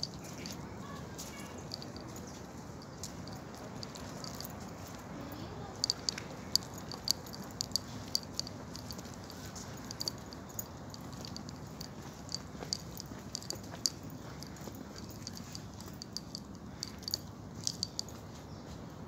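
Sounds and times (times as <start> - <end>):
low background hum: 0.0 - 19.0
high clicks or chirps: 5.8 - 14.0.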